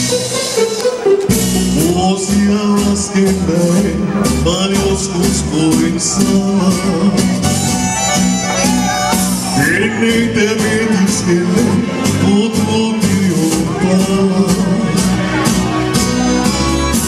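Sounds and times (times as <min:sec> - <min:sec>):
karaoke backing track: 0:00.0 - 0:17.0
man singing into microphone: 0:01.7 - 0:07.6, 0:09.5 - 0:15.3.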